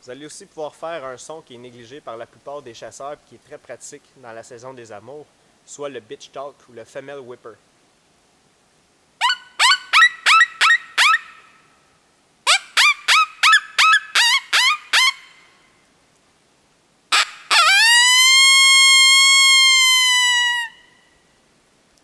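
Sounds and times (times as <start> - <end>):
coyote call yips: 9.2 - 11.6, 12.5 - 15.4, 17.1 - 20.9.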